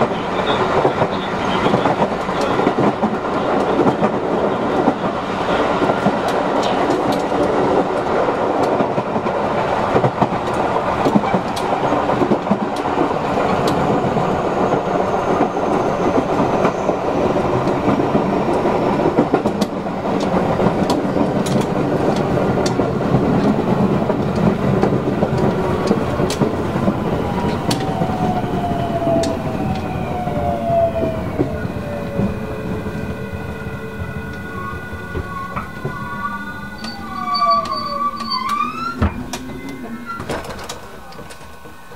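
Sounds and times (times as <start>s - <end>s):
train wheels and motors rumbling: 0.0s - 41.9s
sharp rail clicks: 0.4s - 14.0s, 18.5s - 30.3s.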